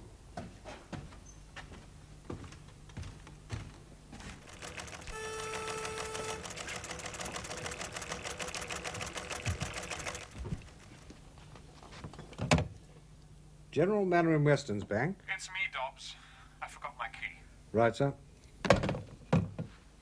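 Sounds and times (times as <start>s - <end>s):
teleprinter clattering: 4.4s - 11.1s.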